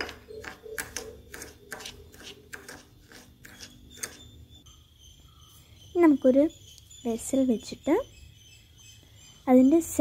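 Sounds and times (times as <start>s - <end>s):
spoon scraping against bowl: 0.0s - 4.5s.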